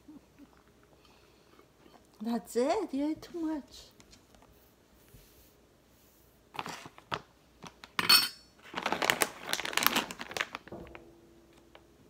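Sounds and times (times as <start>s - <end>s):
plastic bag crinkling: 8.6s - 11.0s.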